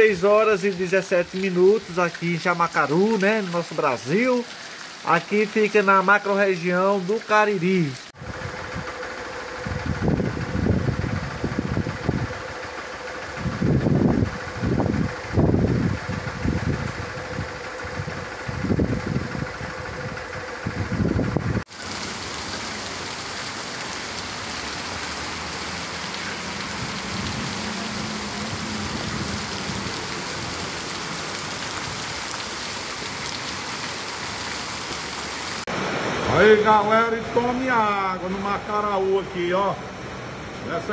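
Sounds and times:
heavy rain on pavement: 0.0s - 36.4s
low rumbling surges: 8.2s - 21.7s
car driving through water: 21.7s - 37.6s.

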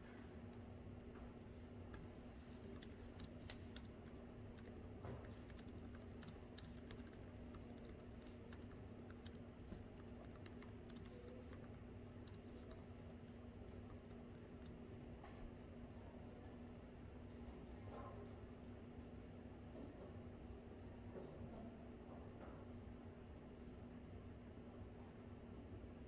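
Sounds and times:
low room hum: 0.0s - 26.0s
laptop keyboard typing: 1.5s - 15.1s.

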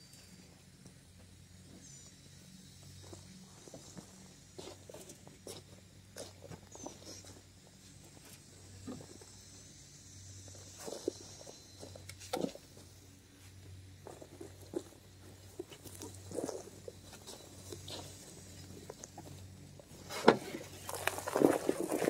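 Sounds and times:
shovel scraping compost: 19.9s - 22.0s.

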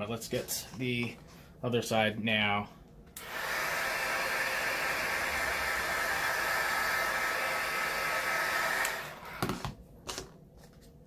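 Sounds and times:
heat gun blowing: 3.2s - 9.6s.

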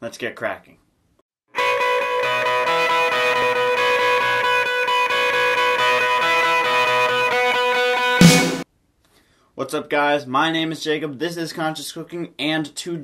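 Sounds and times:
instrumental music with guitar: 1.6s - 8.6s.

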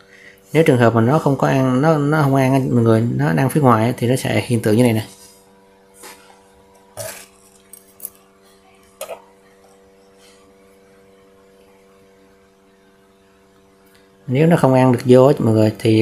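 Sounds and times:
steady electrical hum: 0.0s - 16.0s.

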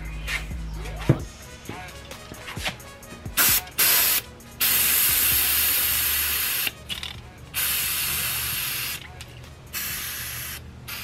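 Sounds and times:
aerosol spray can hissing: 3.4s - 6.8s, 7.6s - 9.0s, 9.7s - 11.0s.

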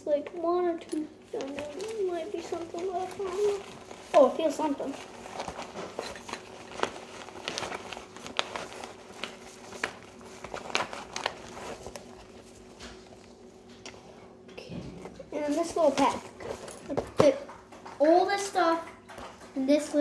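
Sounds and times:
nylon fabric rustling: 1.2s - 13.5s.

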